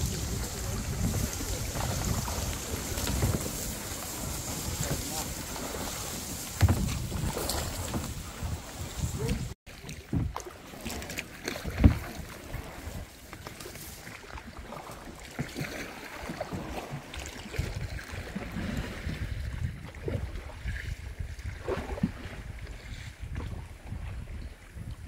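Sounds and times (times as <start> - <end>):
wind rumble on microphone: 0.0 - 10.4, 16.4 - 25.0
paddle knocking on hull: 0.0 - 13.5
paddle splashing water: 0.0 - 25.0.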